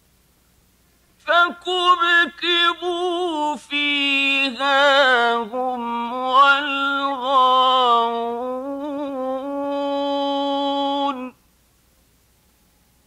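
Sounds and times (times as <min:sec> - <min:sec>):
man reciting melodically: 0:01.2 - 0:11.4.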